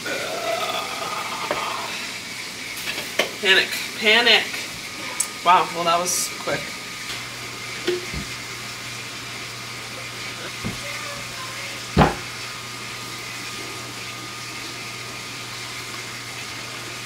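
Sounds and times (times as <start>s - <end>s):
pot set down on countertop: 12.0s - 12.3s.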